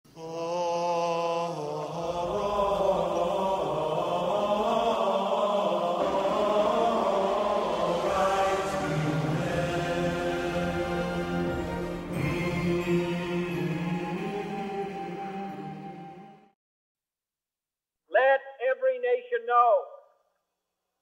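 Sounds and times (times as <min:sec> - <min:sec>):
chant-like voices: 0:00.1 - 0:16.4.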